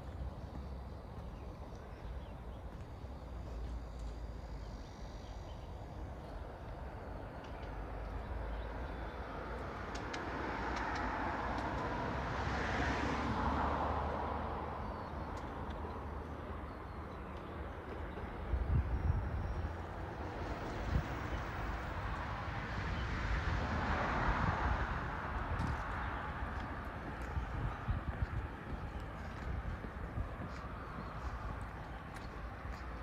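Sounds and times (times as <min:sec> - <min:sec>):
low traffic rumble: 0:00.0 - 0:33.0
vehicle passing: 0:08.4 - 0:15.0, 0:19.7 - 0:33.0.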